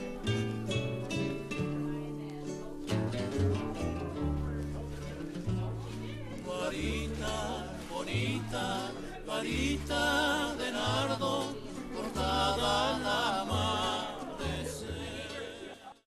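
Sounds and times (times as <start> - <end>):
song with singing and bass: 5.4 - 16.0.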